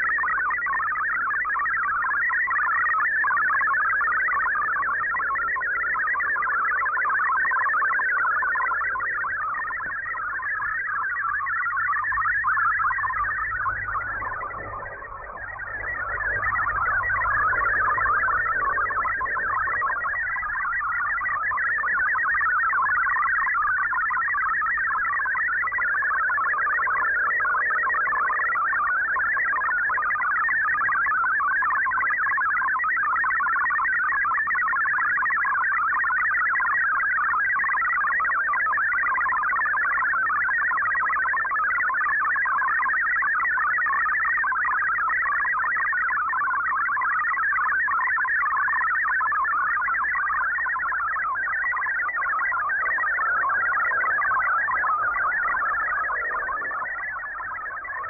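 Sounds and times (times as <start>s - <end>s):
warbling digital data tones: 0.0s - 58.0s
faint radio hiss and hum: 12.4s - 21.2s, 51.4s - 58.0s.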